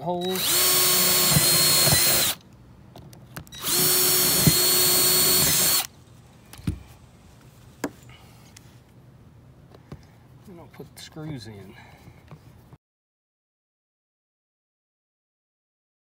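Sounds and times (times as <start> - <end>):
cordless drill boring holes: 0.0 - 2.4, 3.5 - 5.9.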